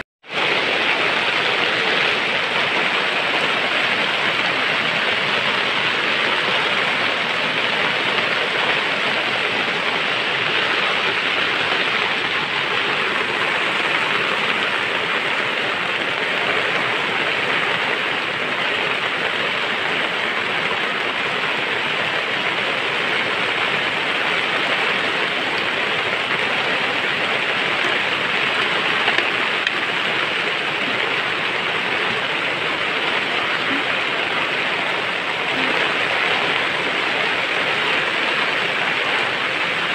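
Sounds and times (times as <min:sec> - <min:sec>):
rain-like hiss: 0:00.2 - 0:39.9.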